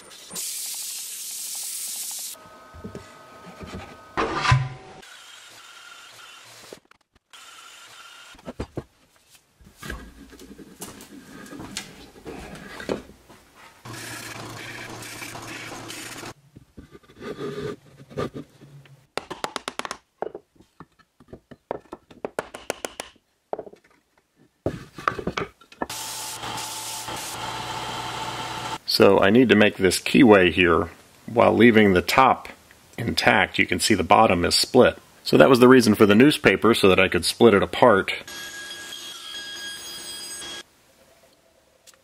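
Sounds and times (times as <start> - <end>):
power tool running: 5.0 - 8.4, 13.9 - 16.4, 25.9 - 28.8
belt sander humming: 13.9 - 16.4, 25.9 - 28.8.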